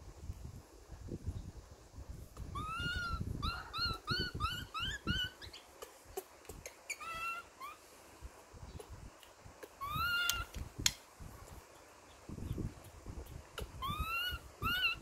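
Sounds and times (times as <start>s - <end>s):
baby monkey squeaking: 2.4s - 7.8s, 9.7s - 10.6s, 13.6s - 15.0s.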